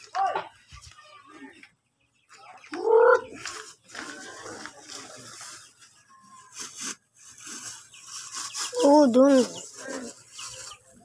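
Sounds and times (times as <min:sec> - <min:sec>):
chick squawking: 0:02.4 - 0:03.7.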